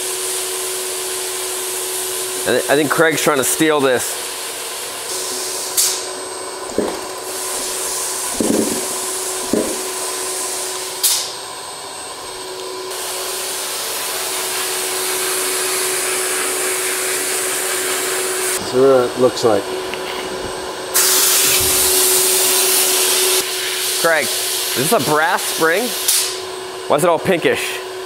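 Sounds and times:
sandblasting hiss: 0.0 - 6.1, 7.2 - 11.3, 12.9 - 18.6, 21.0 - 26.4
motor hum: 3.3 - 23.4.

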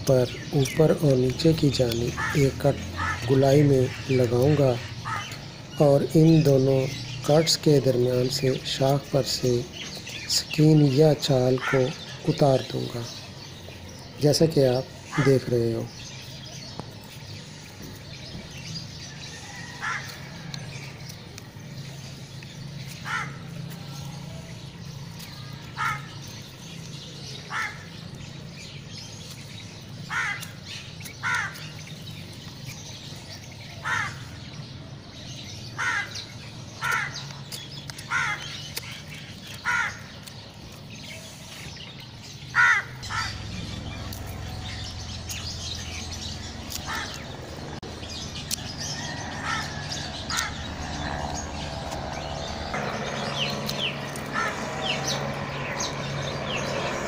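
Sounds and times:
crow cawing: 2.0 - 4.0, 5.0 - 5.6, 19.3 - 20.6, 23.0 - 23.5, 25.8 - 26.2, 27.3 - 28.0, 30.0 - 31.8, 33.8 - 34.4, 35.8 - 37.4, 38.0 - 38.7, 39.6 - 40.2, 42.5 - 47.6, 48.8 - 51.7, 53.7 - 55.2.

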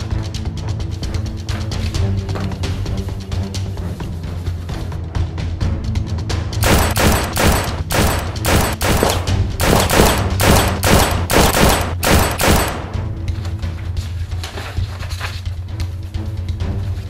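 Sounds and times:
rapid gunshots: 6.6 - 13.0.

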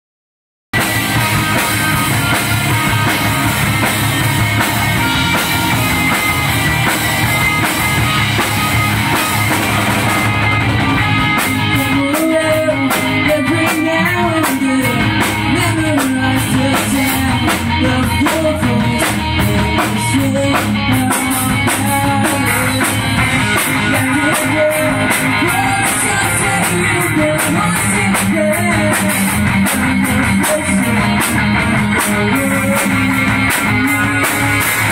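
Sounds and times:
rock band playing: 0.7 - 34.9
man singing: 11.4 - 34.9.

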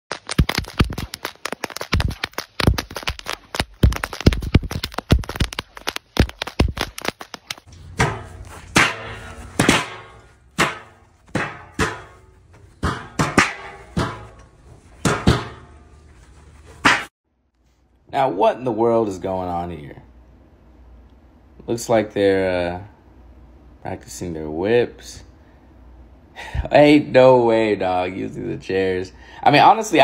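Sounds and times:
whips cracking: 0.1 - 12.1.

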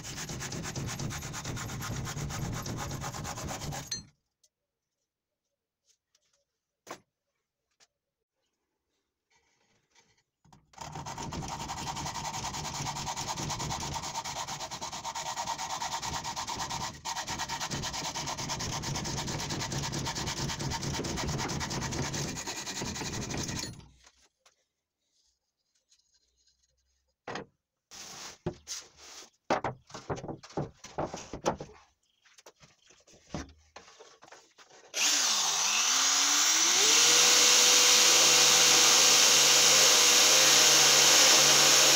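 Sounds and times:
hacksaw sawing by hand: 0.0 - 4.0, 10.8 - 23.8, 34.9 - 41.9.

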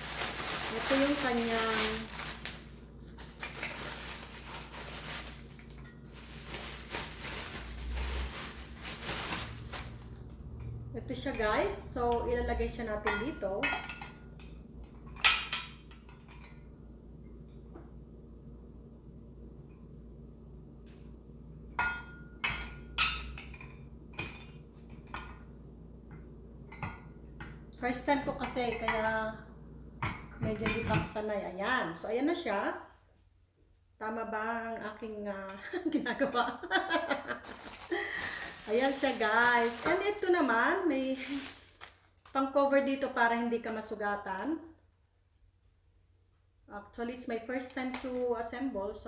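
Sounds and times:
plastic packaging crinkling: 0.0 - 10.4, 37.3 - 42.4.

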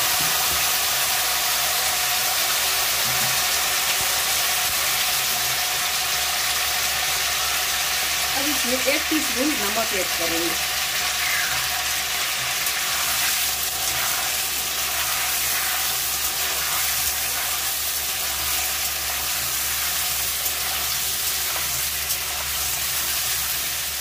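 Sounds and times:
food sizzling in hot oil: 0.0 - 24.0
metal spatula stirring: 12.8 - 22.6.

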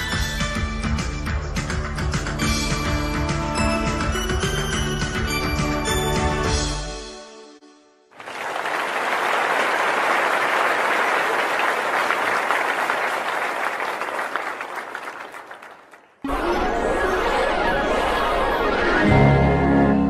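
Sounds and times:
crowd applause: 8.2 - 19.7.

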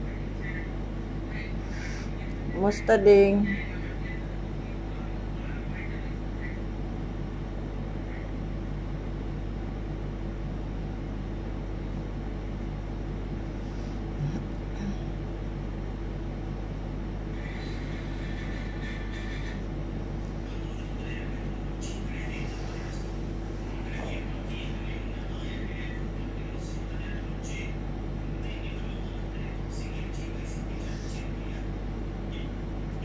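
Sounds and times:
low mechanical hum: 0.0 - 33.0.

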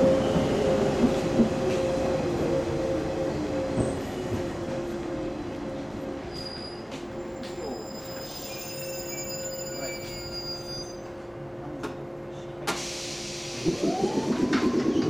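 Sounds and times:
high brake squeal: 6.3 - 11.1
electric train humming: 13.2 - 15.0.

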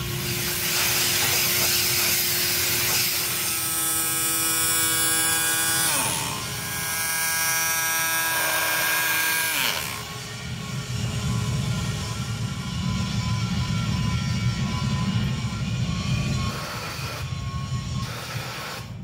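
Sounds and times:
small electric motor whining: 0.0 - 10.4, 15.8 - 19.0.

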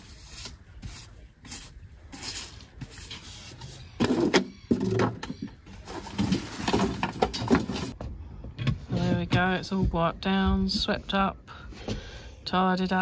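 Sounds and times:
knocks and scrapes of cleaning: 0.0 - 10.0.

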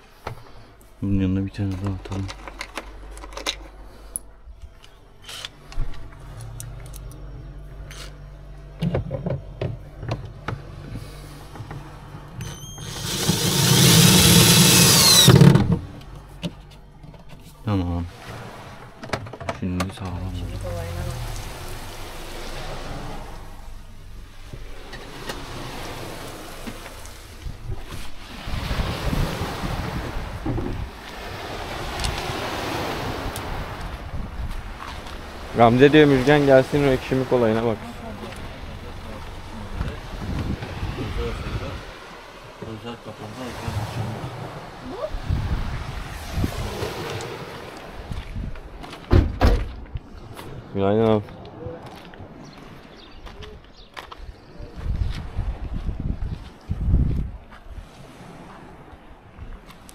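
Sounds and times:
power drill whining: 12.4 - 15.6
wind buffeting microphone: 20.4 - 42.6, 43.5 - 50.7, 51.3 - 59.9.

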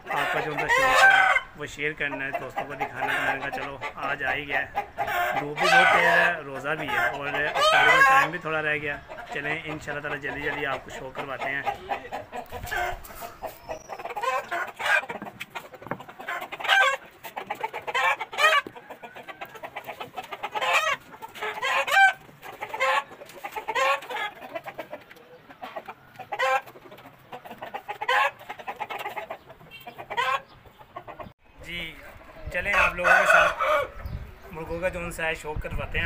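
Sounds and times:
roosters crowing: 0.0 - 1.7, 2.5 - 10.8, 11.4 - 24.7, 27.8 - 30.6, 32.5 - 34.5
chickens clucking: 0.0 - 36.0.

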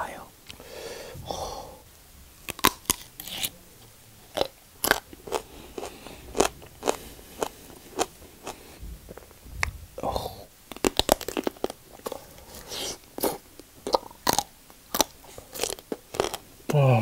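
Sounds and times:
leaf being chewed crunching: 2.4 - 3.5, 4.3 - 9.4, 10.7 - 16.5.

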